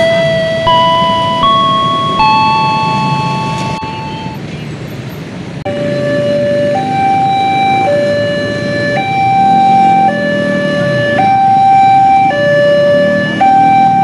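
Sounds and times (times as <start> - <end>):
two-tone crossing alarm: 0.0 - 4.4, 5.7 - 14.0
motorcycle and truck engines: 0.0 - 14.0.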